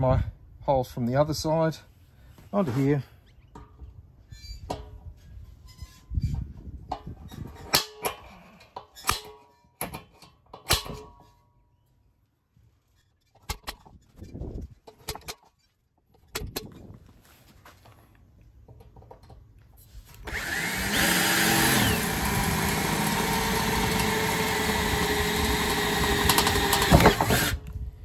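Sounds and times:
cordless drill drilling steel: 0:20.2 - 0:27.7.

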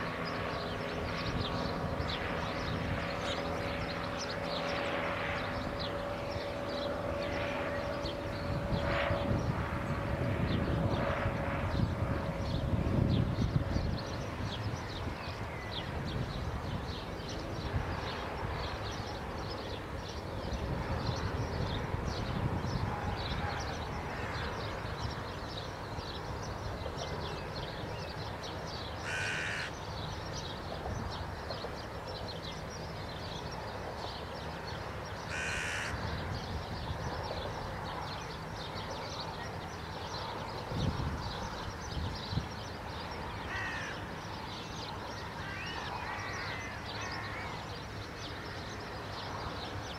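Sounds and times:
faint birdsong: 0:00.0 - 0:49.9
crow cawing: 0:29.0 - 0:29.7, 0:35.3 - 0:36.0, 0:43.5 - 0:44.0.

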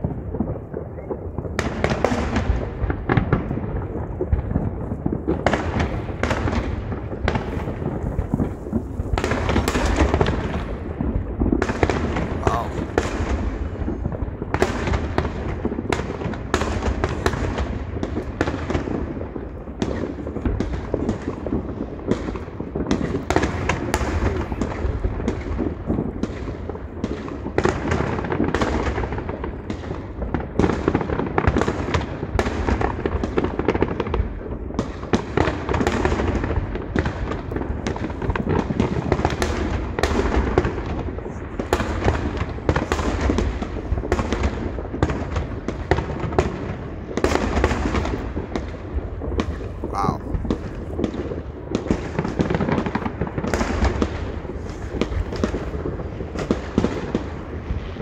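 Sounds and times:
fireworks banging and crackling: 0:00.0 - 0:58.0.

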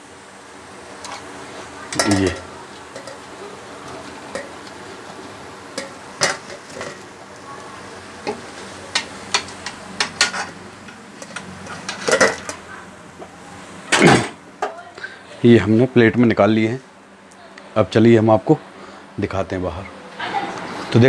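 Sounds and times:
oil sizzling: 0:00.0 - 0:14.0.

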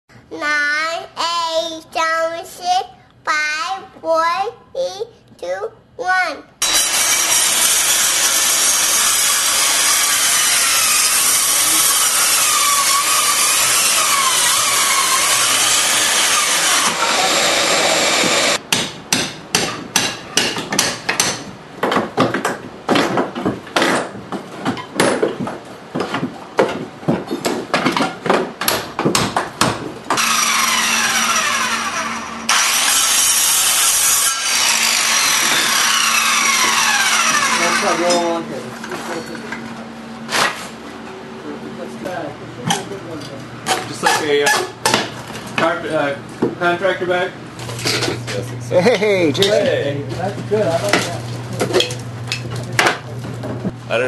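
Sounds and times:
power tool running: 0:06.6 - 0:18.6, 0:30.1 - 0:38.6.

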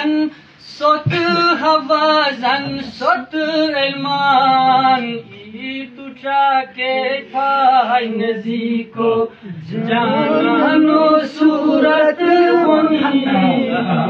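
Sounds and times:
man chanting poetry: 0:00.0 - 0:14.0.

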